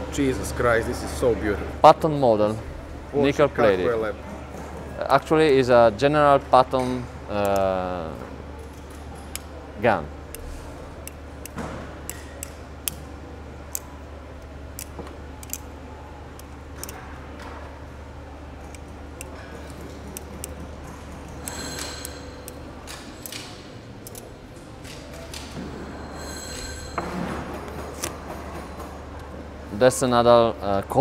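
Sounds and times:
low hum of workshop machinery: 0.0 - 31.0
faint high ringing tone: 21.4 - 22.7, 25.8 - 27.3.

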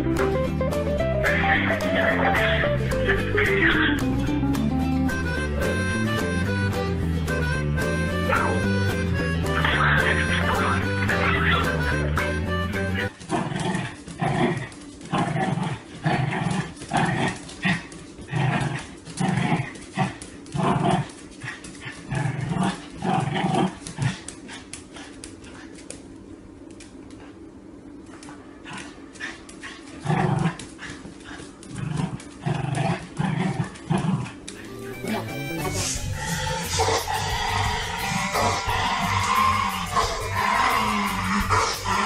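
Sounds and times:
small dog growling and barking: 13.2 - 26.0, 28.1 - 42.0.

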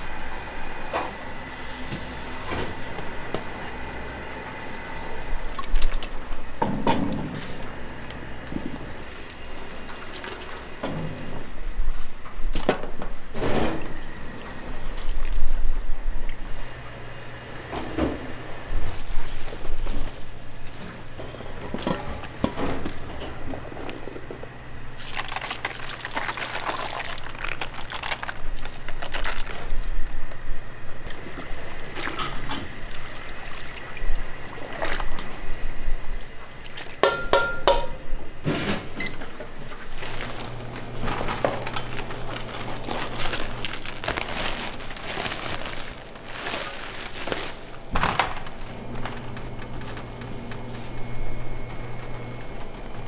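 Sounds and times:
liquid pouring and splashing: 25.0 - 29.6.

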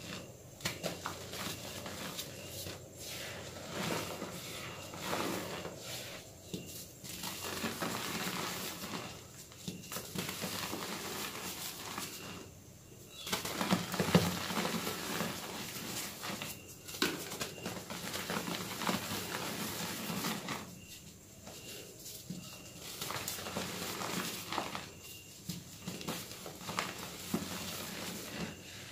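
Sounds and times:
chalk crunching and crackling: 0.0 - 12.5.

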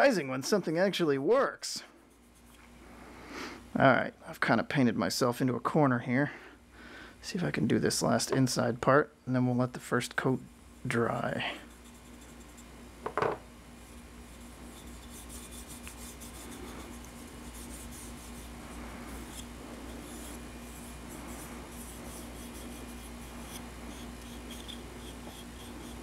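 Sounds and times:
steady low hum: 0.0 - 26.0
fingers rubbing wood: 13.9 - 26.0.

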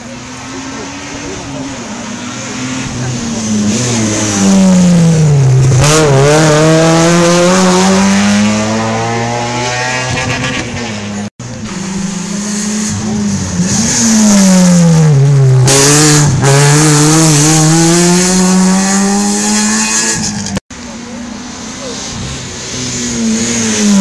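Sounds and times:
rally car engines revving: 0.0 - 24.0.

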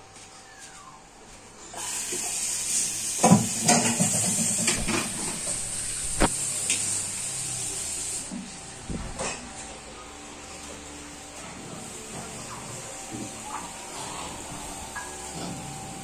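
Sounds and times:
steady hiss: 1.7 - 9.0.

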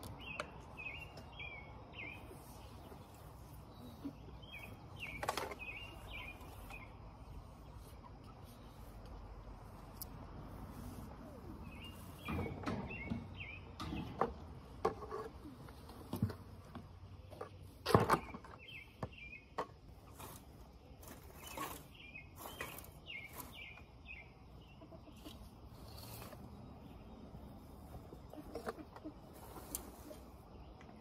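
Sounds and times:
birds chirping: 0.0 - 31.0
rustling: 19.9 - 23.9, 25.2 - 26.7, 27.5 - 30.8.

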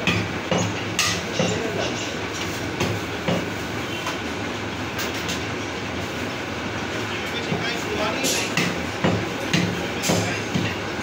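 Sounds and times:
cleavers chopping meat on wood: 8.6 - 10.8.

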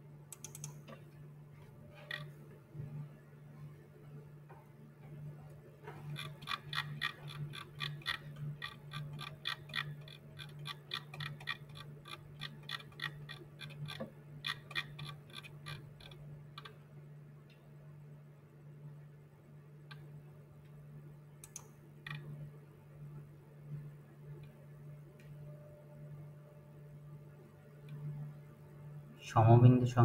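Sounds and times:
low electrical hum: 0.0 - 30.0
mouse scroll wheel clicking: 0.3 - 0.8, 6.0 - 16.7.

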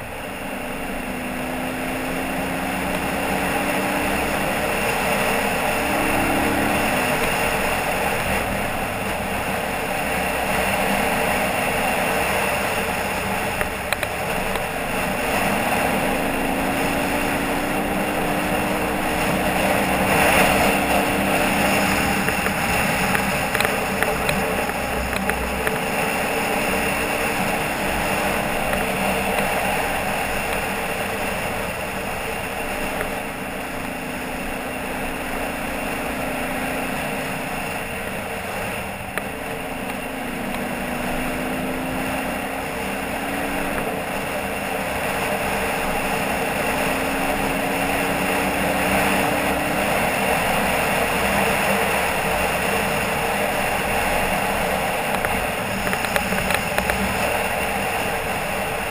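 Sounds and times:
motorcycle engine running: 0.0 - 58.9
wind and tyre noise: 0.0 - 58.9.

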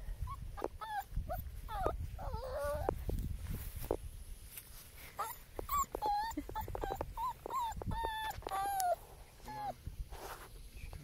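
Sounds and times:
puppy whining: 0.2 - 3.0, 5.2 - 9.8.

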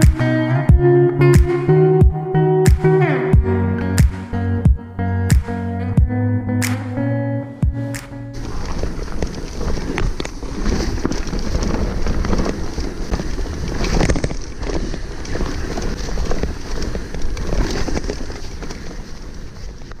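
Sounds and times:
bike rattling and knocking: 7.6 - 20.0
tyres rumbling on trail: 7.7 - 20.0
wind buffeting microphone: 8.4 - 20.0.

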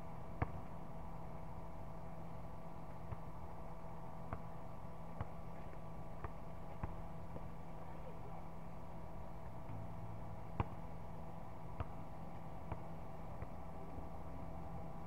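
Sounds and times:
steady hum: 0.0 - 15.0
basketball bouncing on hard court: 6.2 - 7.5.

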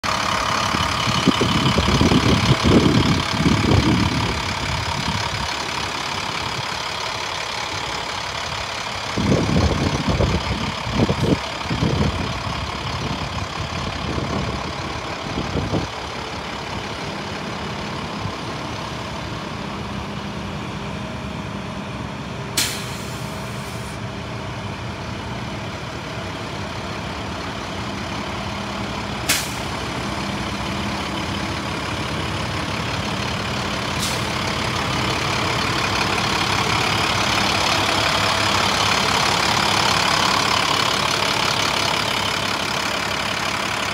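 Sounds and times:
diesel engine idling: 0.0 - 43.9
wind buffeting microphone: 0.6 - 5.5, 9.1 - 16.0
brief hiss: 22.6 - 24.0.

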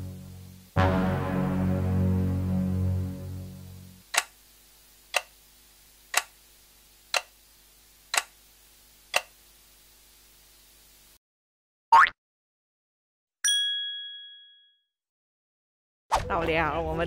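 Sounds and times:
clock ticking: 4.1 - 4.3, 5.1 - 5.3, 6.1 - 6.3, 7.1 - 7.3.

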